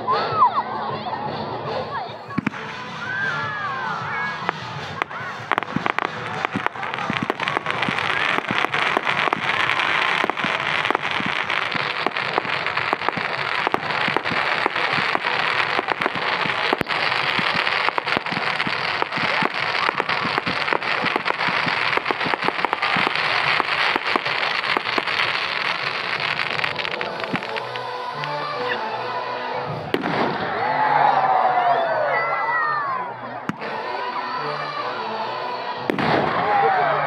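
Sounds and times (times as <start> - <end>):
fireworks crackling: 2.2 - 29.1, 29.8 - 30.6, 33.5 - 33.9, 35.9 - 36.7.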